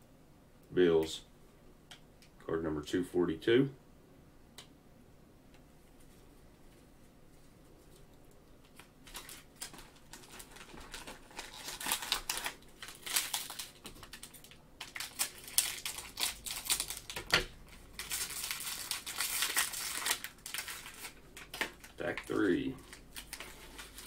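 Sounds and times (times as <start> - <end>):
plastic wrapper crinkling and tearing: 7.8 - 24.0.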